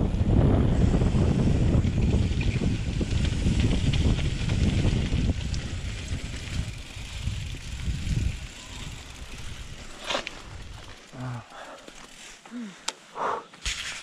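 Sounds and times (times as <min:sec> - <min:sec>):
wind buffeting microphone: 0:00.0 - 0:11.0
bike tyre rumble on gravel: 0:00.0 - 0:12.6.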